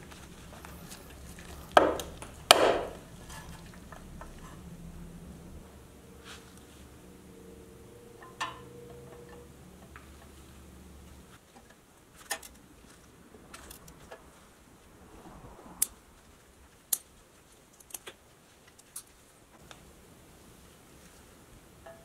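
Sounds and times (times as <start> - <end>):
low hum: 0.0 - 11.4, 12.5 - 17.3.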